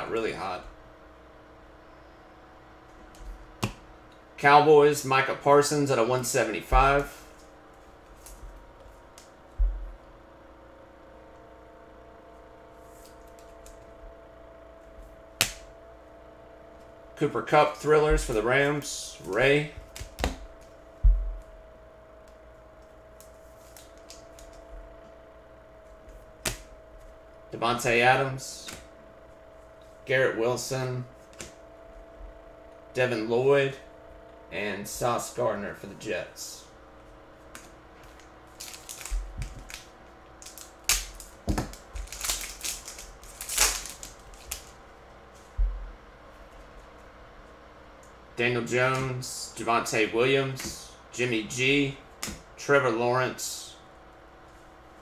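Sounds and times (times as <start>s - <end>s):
faint steady hum: 0.0s - 55.0s
foil wrapper crinkling: 38.1s - 44.8s.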